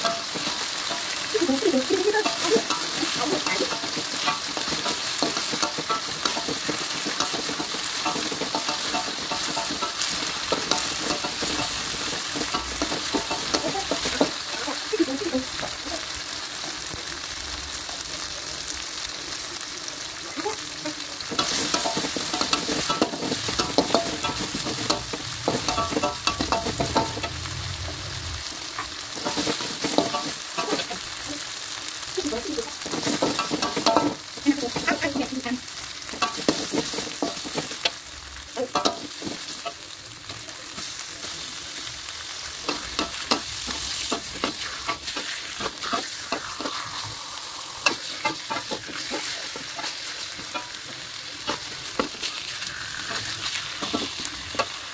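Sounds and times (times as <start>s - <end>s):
spice paste sizzling in hot oil: 0.0s - 54.9s
metal spatula scraping pan: 21.3s - 28.1s.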